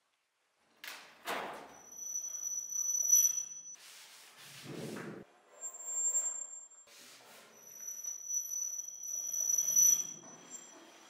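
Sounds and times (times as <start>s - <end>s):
object squealing on sheet metal: 1.8s - 3.7s, 7.4s - 11.0s.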